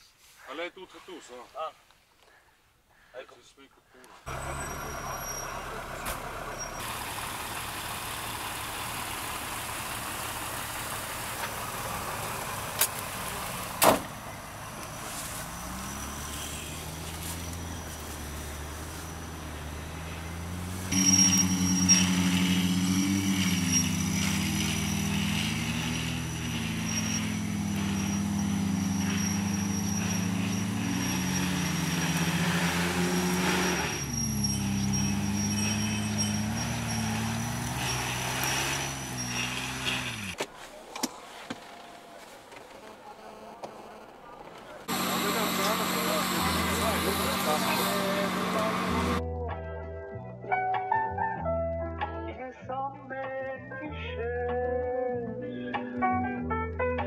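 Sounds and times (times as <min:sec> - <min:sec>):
off-road engine revving: 0:04.3 - 0:40.4, 0:42.4 - 0:49.4.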